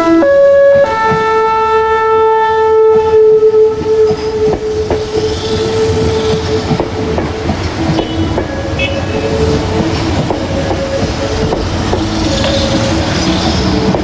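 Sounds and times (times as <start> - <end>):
train music horn long note: 0.0 - 14.0
train wheels clicking over rail joints: 2.9 - 14.0.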